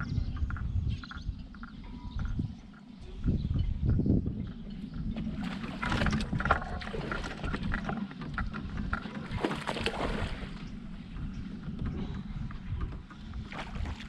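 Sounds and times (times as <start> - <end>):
steady low rumble: 0.0 - 14.0
fish thrashing and splashing: 5.1 - 10.7.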